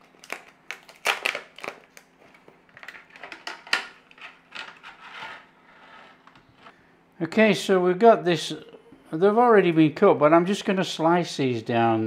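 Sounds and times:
plastic packaging crackling and clicking: 0:00.0 - 0:05.1.

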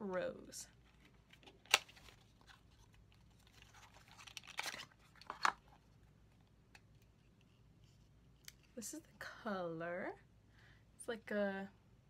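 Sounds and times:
packaging rustle: 0:00.8 - 0:05.9.

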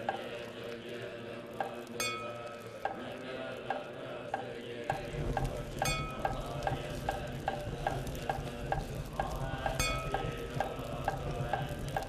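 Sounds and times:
bowl bell ringing: 0:02.0 - 0:02.8, 0:05.7 - 0:08.4, 0:09.7 - 0:10.8.

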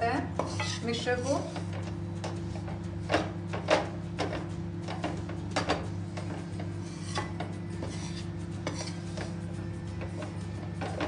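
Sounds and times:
steady low hum: 0:00.0 - 0:11.0
metal spatula scraping a pan: 0:00.4 - 0:01.8, 0:06.0 - 0:11.0.

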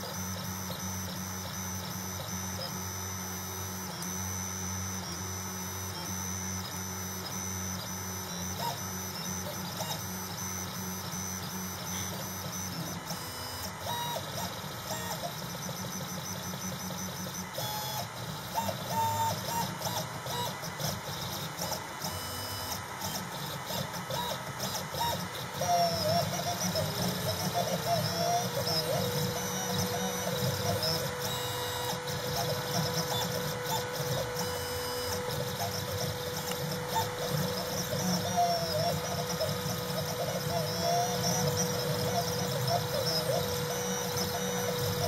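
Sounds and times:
machine hum: 0:23.0 - 0:45.0
stepper motors whining: 0:23.0 - 0:45.0.

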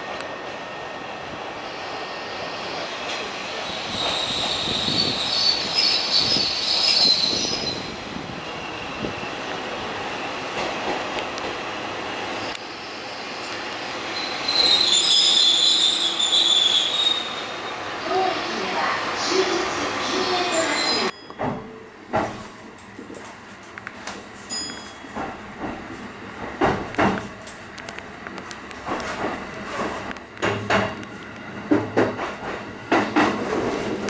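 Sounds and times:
diesel railcar rumble: 0:00.0 - 0:34.0
train wheels squealing: 0:01.6 - 0:10.5, 0:14.1 - 0:17.9, 0:20.1 - 0:21.8.

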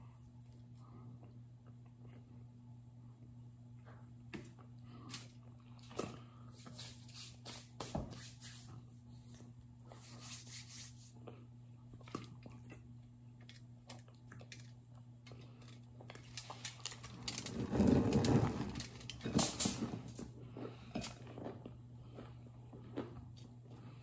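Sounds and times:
crunching and chewing: 0:11.2 - 0:24.0.

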